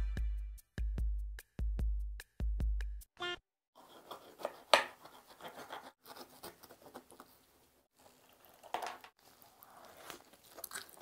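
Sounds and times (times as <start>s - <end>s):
food being pulled apart: 9.2s - 11.0s.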